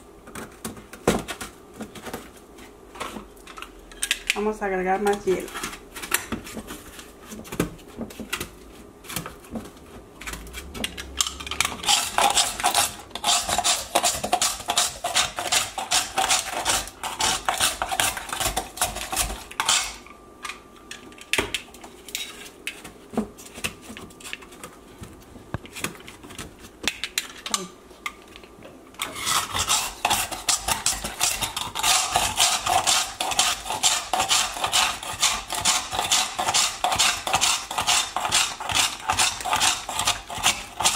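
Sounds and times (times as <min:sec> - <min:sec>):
ice shaver scraping ice: 0:11.6 - 0:19.9, 0:29.0 - 0:40.9.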